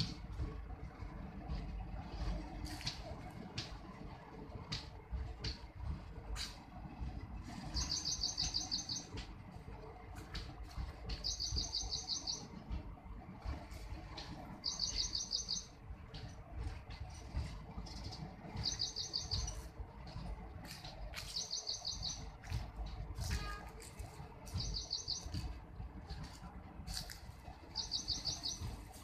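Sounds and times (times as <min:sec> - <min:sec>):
rail clicks: 0:00.0 - 0:29.0
train wheels rumbling on rail: 0:00.0 - 0:29.0
bird trilling chirps: 0:07.6 - 0:09.1, 0:11.1 - 0:12.6, 0:14.6 - 0:15.8, 0:18.0 - 0:19.6, 0:21.2 - 0:22.3, 0:24.5 - 0:25.4, 0:27.8 - 0:28.7.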